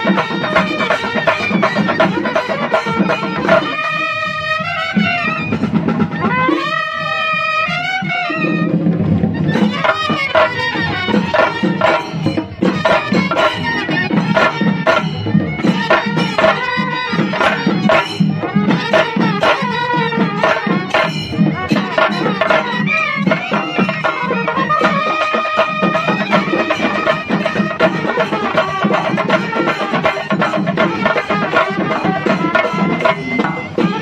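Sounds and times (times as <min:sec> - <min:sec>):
drums beaten with sticks: 0:00.0 - 0:34.0
melody line over drumming: 0:08.7 - 0:34.0.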